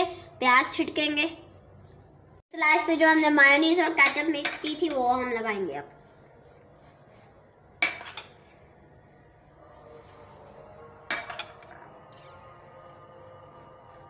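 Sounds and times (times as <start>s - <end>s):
knife scraping on bread: 9.4s - 14.0s.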